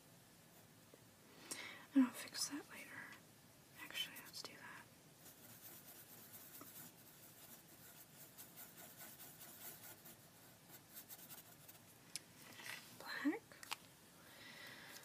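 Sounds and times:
marker scribbling on paper: 5.2 - 11.8.

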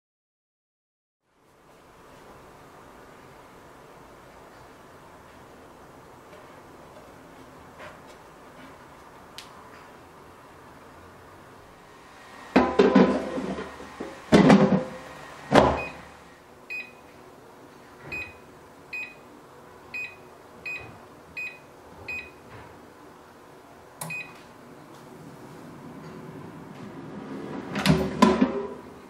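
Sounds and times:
air fryer basket clunks: 12.6 - 16.0, 27.7 - 28.8.

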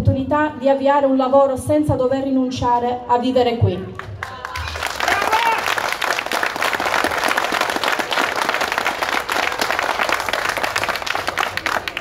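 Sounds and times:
audience applause: 4.2 - 12.0.

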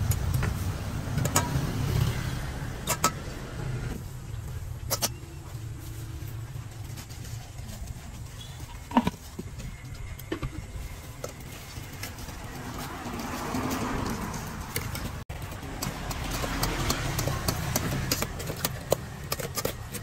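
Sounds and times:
low engine rumble: 0.0 - 20.0.

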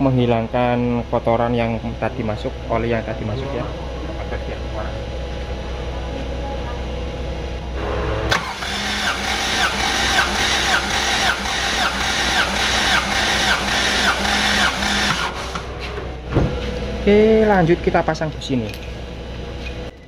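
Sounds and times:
starter motor cranking engine: 7.8 - 15.8.

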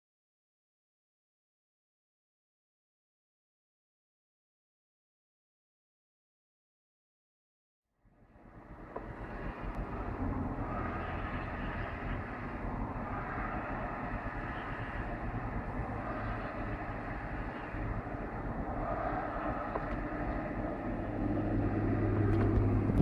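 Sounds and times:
mud volcano deep rushing roar: 8.4 - 23.0.

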